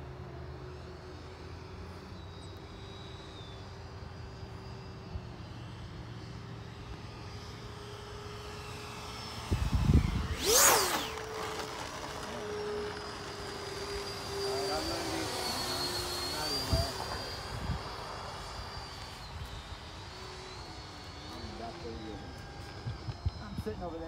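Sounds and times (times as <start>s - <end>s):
model jet whining: 0.0s - 24.0s
wind buffeting microphone: 9.4s - 10.8s.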